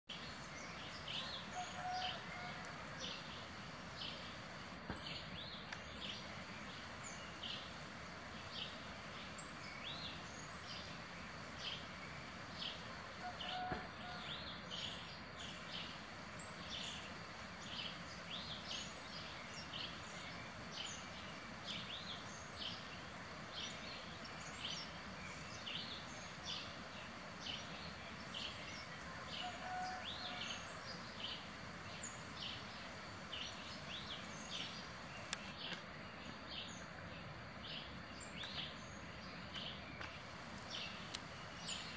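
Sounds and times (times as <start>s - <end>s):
faint steady hiss: 0.1s - 41.9s.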